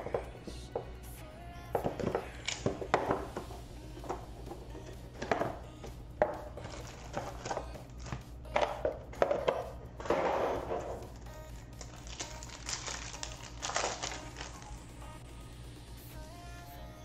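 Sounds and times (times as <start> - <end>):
wrapped packs rustling: 6.6 - 8.2, 11.8 - 14.8.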